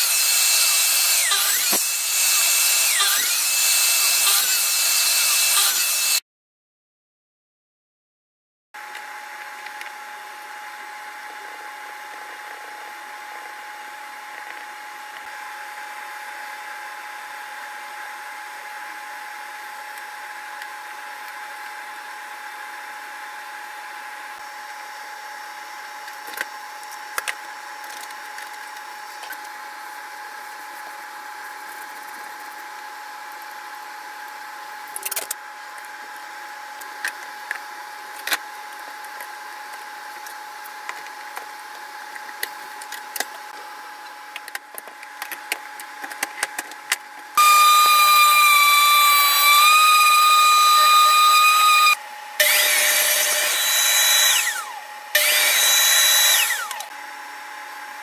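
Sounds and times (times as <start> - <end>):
machine humming with whine: 47.4 - 57.9.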